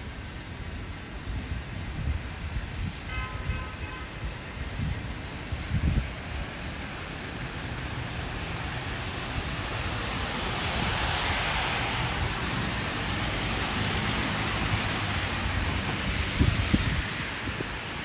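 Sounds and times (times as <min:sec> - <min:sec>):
car tyres hissing on wet road: 0:00.0 - 0:18.0
steady rain on a street: 0:00.0 - 0:18.0.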